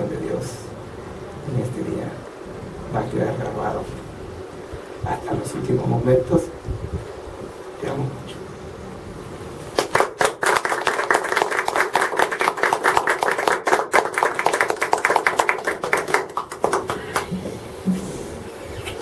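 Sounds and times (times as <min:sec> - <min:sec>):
people clapping: 0:09.7 - 0:17.5.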